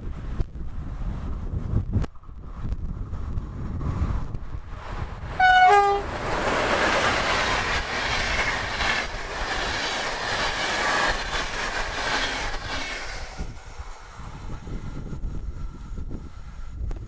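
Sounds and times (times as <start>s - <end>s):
train wheels rolling on rails: 0.2s - 17.0s
two-note train horn: 5.4s - 6.1s.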